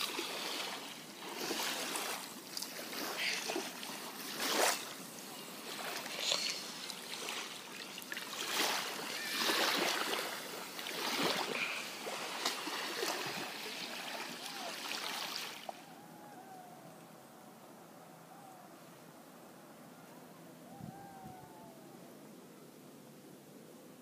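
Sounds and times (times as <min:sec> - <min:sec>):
water lapping on sandy shore: 0:00.0 - 0:16.2
faint gliding whistles: 0:19.9 - 0:22.7.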